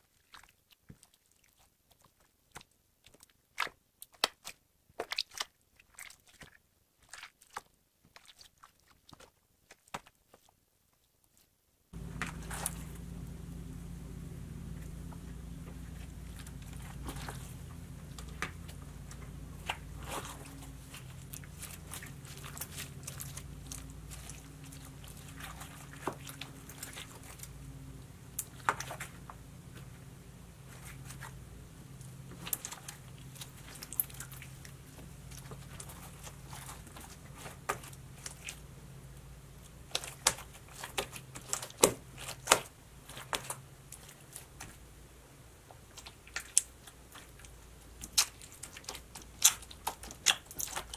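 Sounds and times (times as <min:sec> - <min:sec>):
low steady hum: 0:12.0 - 0:50.9.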